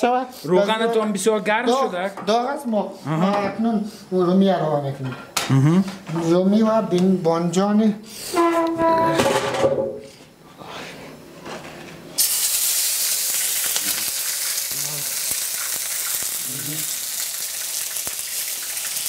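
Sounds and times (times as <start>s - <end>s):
tomatoes sizzling in hot oil: 12.2s - 19.0s.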